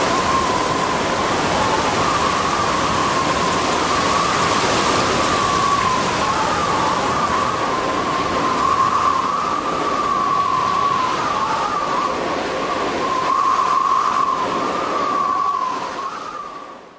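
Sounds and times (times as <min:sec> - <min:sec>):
high wavering whistle: 0:00.0 - 0:16.8
howling wind: 0:00.0 - 0:16.9.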